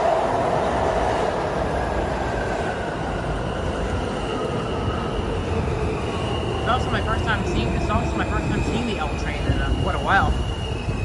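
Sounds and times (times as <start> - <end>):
subway train wheel rumble: 0.0 - 11.0.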